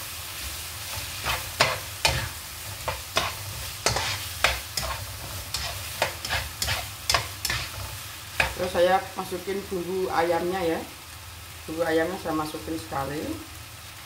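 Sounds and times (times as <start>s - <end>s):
food sizzling in a wok: 0.0s - 14.0s
spatula stirring and scraping: 0.4s - 8.7s.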